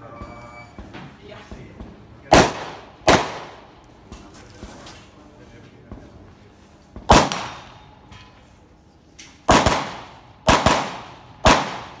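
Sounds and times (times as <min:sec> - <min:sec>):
rifle shots ringing out: 0:02.3 - 0:03.8, 0:07.0 - 0:08.0, 0:09.4 - 0:12.0.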